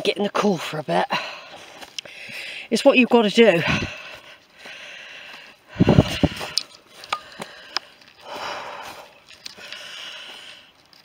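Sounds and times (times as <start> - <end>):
person breathing heavily: 1.1 - 2.7, 3.6 - 10.9
footsteps on dry leaves: 3.4 - 10.8.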